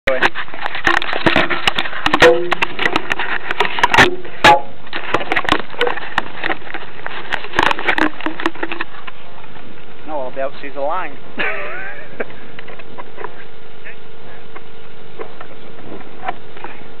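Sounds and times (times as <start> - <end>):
hands handling tow line: 0.1 - 9.2.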